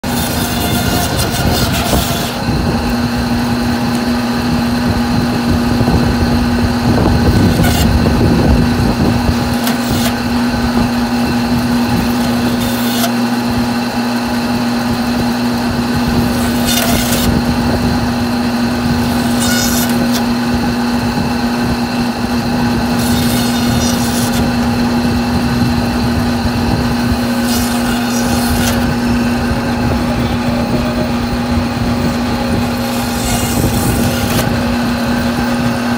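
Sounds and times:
saw blade cutting bone: 0.0s - 2.6s, 7.3s - 8.0s, 9.3s - 13.3s, 16.2s - 17.5s, 18.9s - 20.4s, 22.7s - 25.0s, 27.1s - 29.4s, 32.6s - 35.0s
bandsaw humming: 0.0s - 35.9s.

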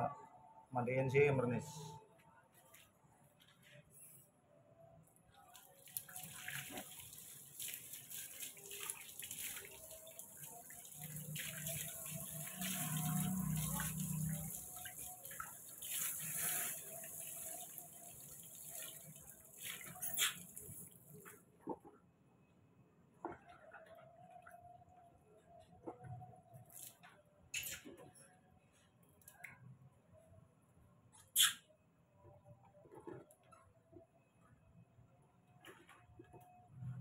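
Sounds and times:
water splashing on concrete: 5.5s - 21.2s
hose water spraying: 6.0s - 20.8s.

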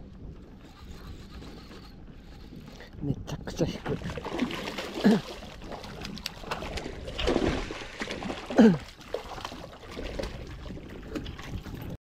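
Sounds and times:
fish splashing and thrashing: 3.7s - 12.0s.

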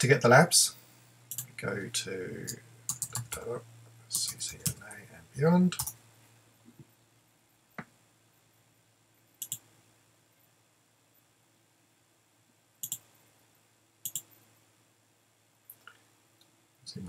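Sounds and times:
faint steady hum: 0.0s - 17.0s
computer mouse clicking: 1.3s - 1.5s, 2.9s - 3.4s, 5.8s - 6.0s, 9.4s - 9.6s, 12.8s - 13.1s, 14.0s - 14.4s.

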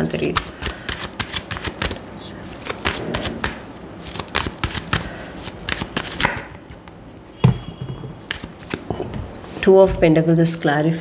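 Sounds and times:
cards being shuffled: 0.0s - 7.0s, 8.2s - 8.9s
dull thump: 7.4s - 8.2s.

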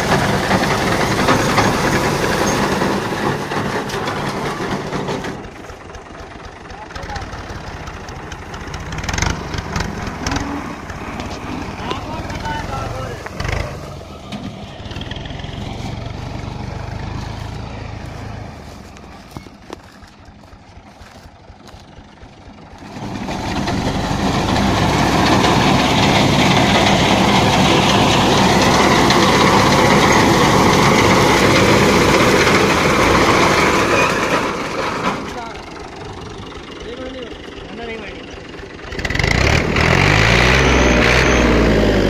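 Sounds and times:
tractor diesel engine running: 0.0s - 42.0s
reaper cutting wheat: 8.2s - 22.0s.

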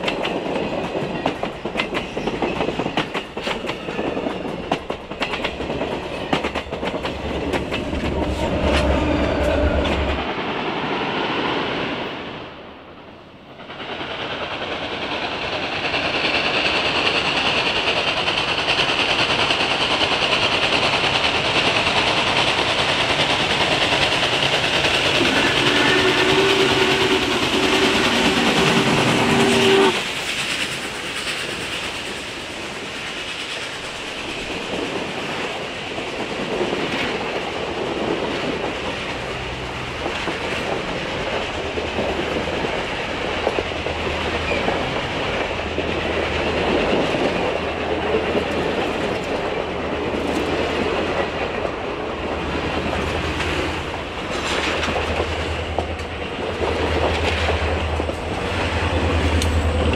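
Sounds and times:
train rumbling past: 0.0s - 59.9s
steam whistle chord: 25.2s - 30.1s.

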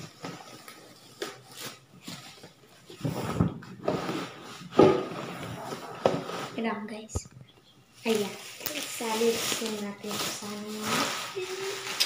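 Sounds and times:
cardboard rustling and scraping: 0.0s - 6.9s, 8.1s - 12.0s.

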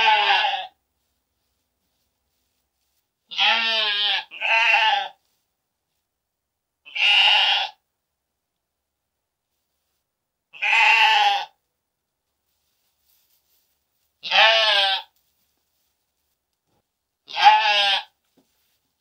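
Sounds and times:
sheep bleating: 0.0s - 0.8s, 3.3s - 5.2s, 6.9s - 7.8s, 10.6s - 11.6s, 14.2s - 15.1s, 17.3s - 18.2s.

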